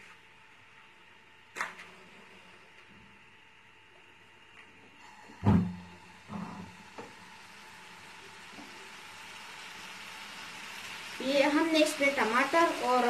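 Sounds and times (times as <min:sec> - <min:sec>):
food sizzling: 0:05.0 - 0:13.0.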